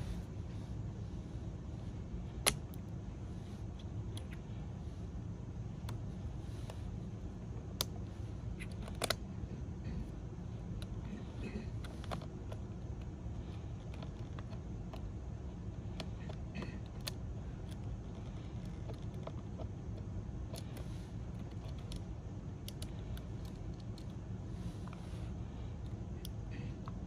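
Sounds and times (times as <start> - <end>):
steady low hum: 0.0 - 27.0
plastic tool clicking on connectors: 21.4 - 24.2.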